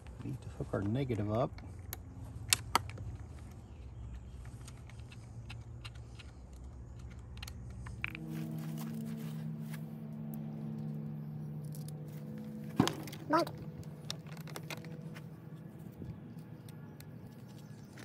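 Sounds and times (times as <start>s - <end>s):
steady low hum: 1.5s - 18.0s
small metallic clicks and rattles: 13.0s - 15.1s.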